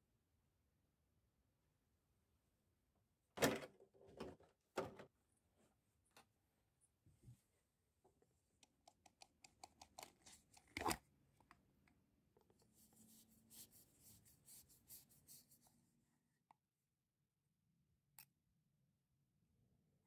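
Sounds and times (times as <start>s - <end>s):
plastic filter cover clicking: 9.8s - 11.0s.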